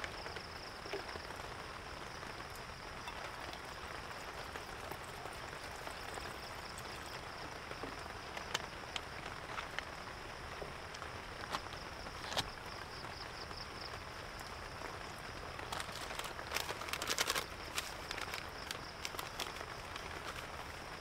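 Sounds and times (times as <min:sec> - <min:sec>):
steady rain hiss: 0:00.0 - 0:21.0
water drips: 0:02.1 - 0:11.8
dense rustling and crackling: 0:02.2 - 0:13.2, 0:13.8 - 0:21.0.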